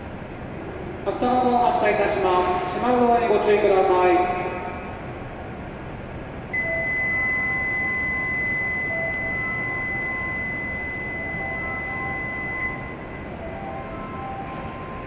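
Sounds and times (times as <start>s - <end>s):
electronic door-closing warning tone: 6.5s - 15.0s.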